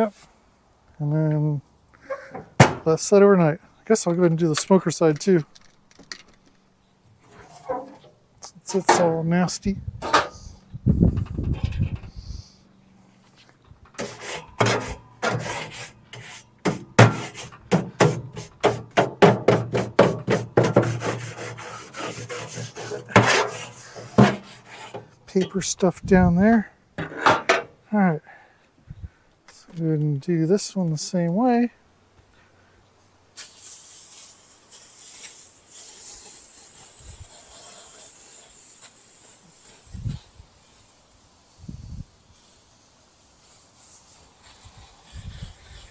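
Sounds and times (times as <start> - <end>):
aerosol can spraying: 14.0 - 19.0, 19.7 - 25.1, 33.4 - 45.9.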